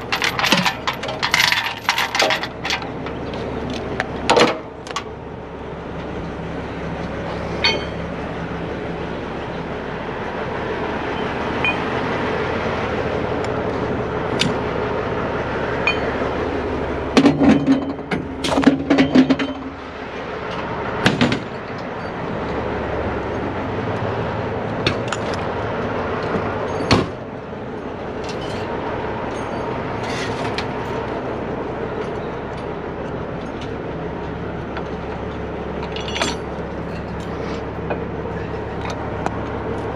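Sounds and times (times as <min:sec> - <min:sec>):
metal clanks and knocks: 0:00.0 - 0:05.0, 0:07.6 - 0:08.1, 0:17.1 - 0:19.8, 0:34.8 - 0:39.9
truck diesel engine running: 0:00.0 - 0:39.9.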